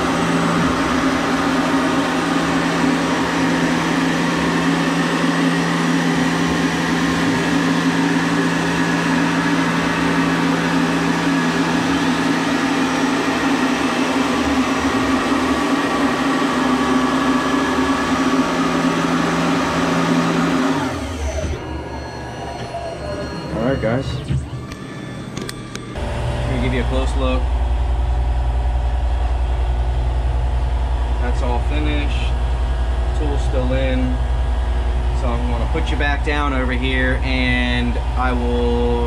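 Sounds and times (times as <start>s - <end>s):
milling machine cutting metal: 0.0s - 27.4s.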